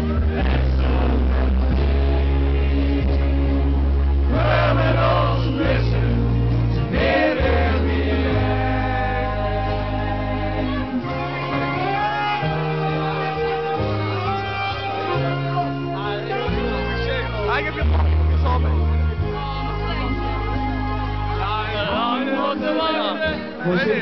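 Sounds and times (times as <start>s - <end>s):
slow song with held chords: 0.0s - 24.0s
group singing in chorus: 0.1s - 14.0s.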